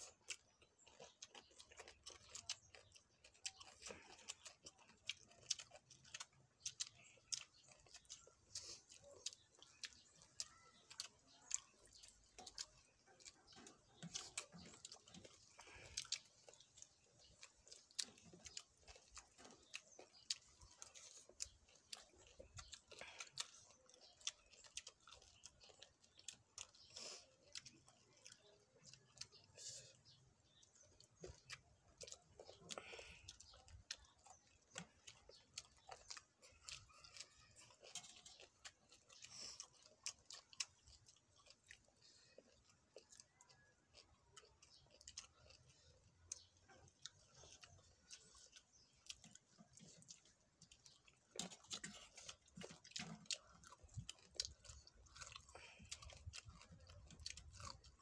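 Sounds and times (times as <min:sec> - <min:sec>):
close-up chewing with crunches: 0:00.0 - 0:58.0.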